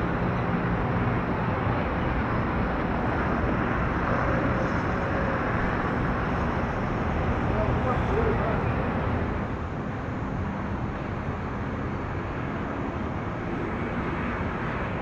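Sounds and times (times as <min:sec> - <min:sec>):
distant jet engines: 0:00.0 - 0:15.0.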